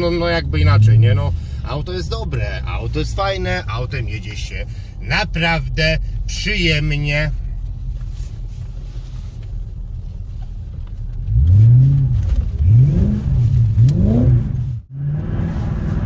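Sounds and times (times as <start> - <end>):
car engine revving: 0.0 - 2.6, 11.1 - 16.0.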